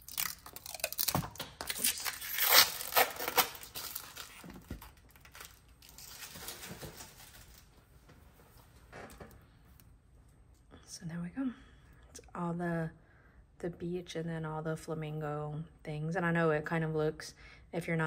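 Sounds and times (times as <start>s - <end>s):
plastic film peeling and crackling: 0.0s - 7.9s.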